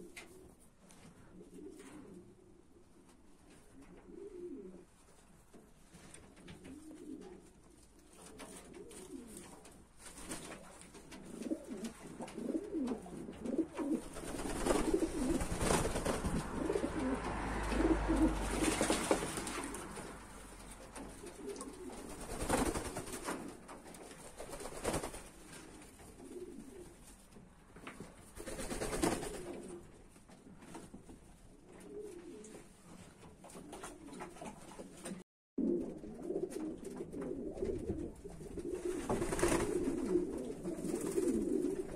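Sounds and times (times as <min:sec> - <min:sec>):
pigeons cooing: 0:03.7 - 0:04.9, 0:06.4 - 0:09.7, 0:11.1 - 0:23.6, 0:25.4 - 0:27.1, 0:31.7 - 0:32.6, 0:35.6 - 0:41.9
wings flapping: 0:08.1 - 0:27.2, 0:27.9 - 0:29.9, 0:36.5 - 0:41.9.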